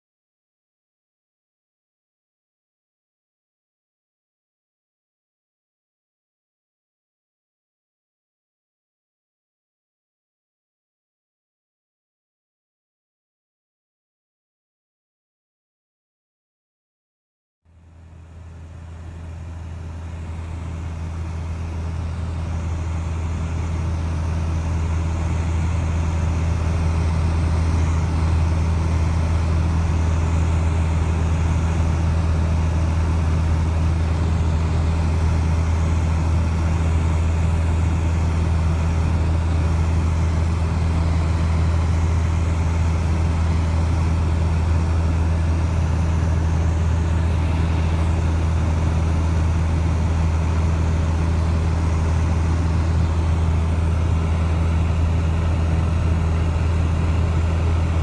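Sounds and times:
propeller airplane engine droning: 0:17.7 - 0:58.0.

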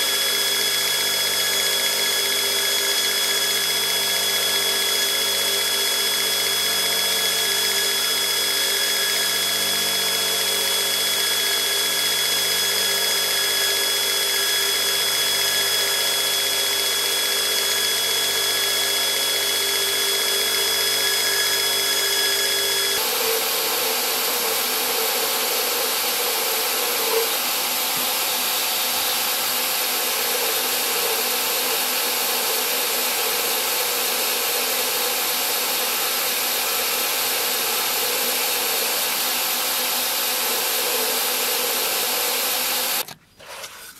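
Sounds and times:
belt grinder whining: 0:00.0 - 0:43.9
belt grinder hissing grind: 0:20.8 - 0:43.9.

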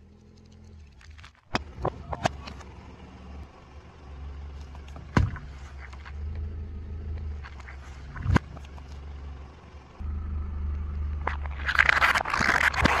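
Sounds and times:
car engine hum: 0:00.0 - 0:13.0
cartons cracking and popping: 0:11.2 - 0:13.0.

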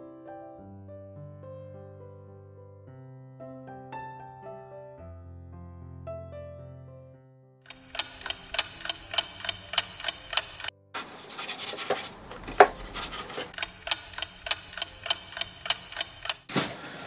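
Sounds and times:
clock ticking: 0:07.7 - 0:10.7, 0:11.6 - 0:16.5
scrubbing on wood: 0:11.0 - 0:13.6.

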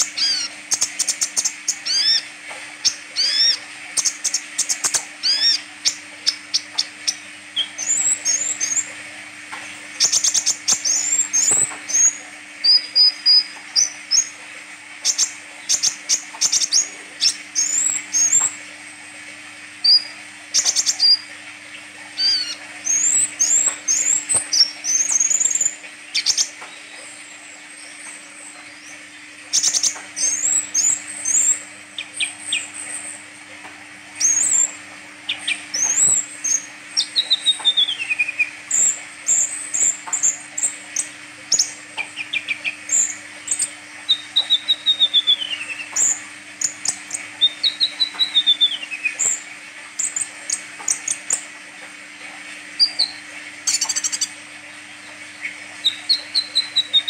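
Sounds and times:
sunbird singing: 0:00.0 - 0:09.0, 0:09.6 - 0:18.6, 0:19.8 - 0:33.2, 0:34.2 - 0:51.5, 0:52.8 - 0:57.0.

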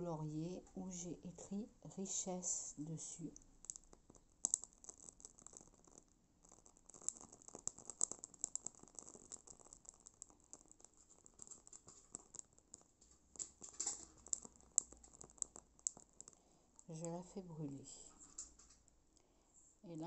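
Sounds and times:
leaf crackling in flame: 0:03.4 - 0:17.3.

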